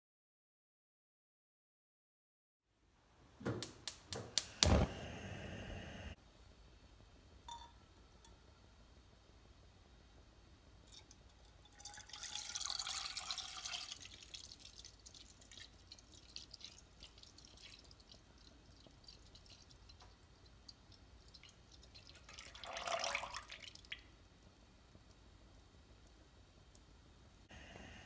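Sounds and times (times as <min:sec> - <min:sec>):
faint drips and pops: 0:10.8 - 0:27.5
milk pouring and splashing: 0:10.9 - 0:24.2.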